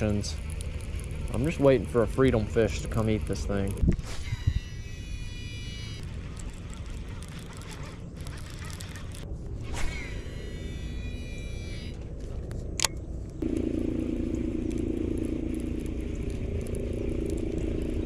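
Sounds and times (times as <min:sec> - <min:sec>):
reel gears whirring: 0:00.0 - 0:12.0, 0:13.4 - 0:18.0
fishing reel spool whine: 0:00.0 - 0:12.4, 0:13.4 - 0:18.0
wind rumbling on microphone: 0:03.7 - 0:04.9.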